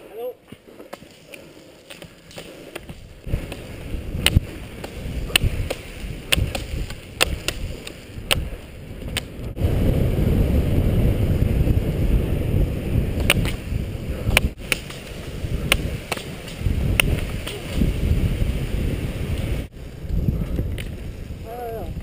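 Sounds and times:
ski pole tips clicking on pavement: 0:00.5 - 0:09.5, 0:13.2 - 0:18.0, 0:20.1 - 0:21.0
roller ski wheels rumbling on asphalt: 0:00.5 - 0:22.0.

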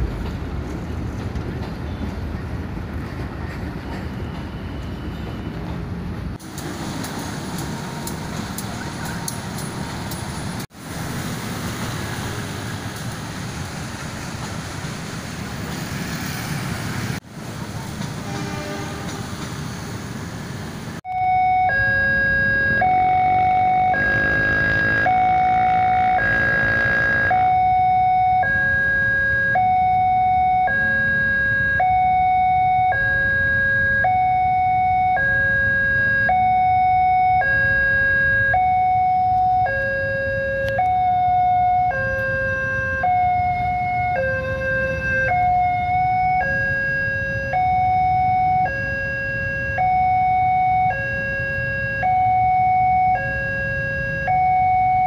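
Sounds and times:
low rumble of traffic: 0:00.0 - 0:55.0
two-tone electronic crossing alarm: 0:21.1 - 0:55.0.

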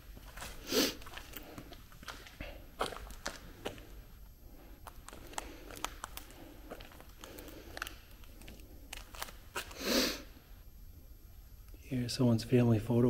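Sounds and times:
footsteps crunching in debris: 0:00.0 - 0:04.0, 0:04.8 - 0:09.8
rustling crunch: 0:00.0 - 0:04.0, 0:04.7 - 0:09.8.

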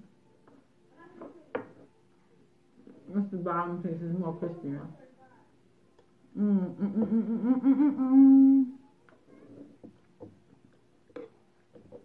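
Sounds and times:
woman humming while eating: 0:06.3 - 0:08.9.

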